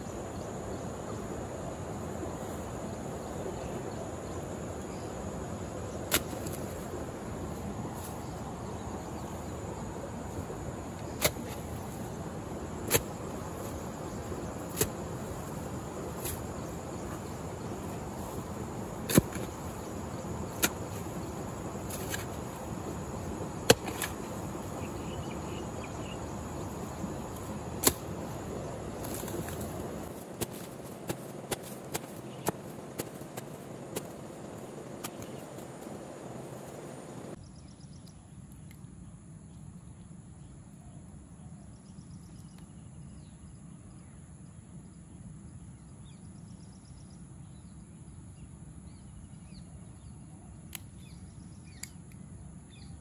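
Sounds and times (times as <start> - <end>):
steady background hiss: 0.0 - 53.0
hoe striking damp soil: 5.9 - 37.4.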